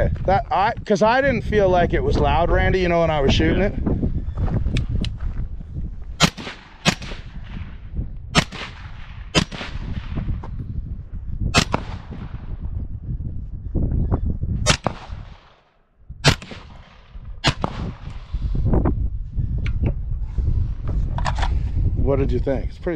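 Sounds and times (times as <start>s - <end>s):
suppressed rifle shots: 6.2s - 7.7s, 8.4s - 10.3s, 11.6s - 12.4s, 14.7s - 18.3s.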